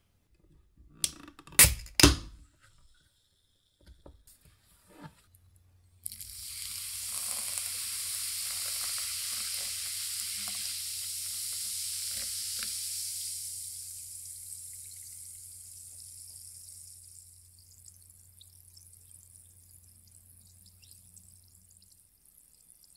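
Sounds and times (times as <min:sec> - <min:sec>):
soda fizzing: 0:06.0 - 0:22.9
soda pouring: 0:06.0 - 0:22.9.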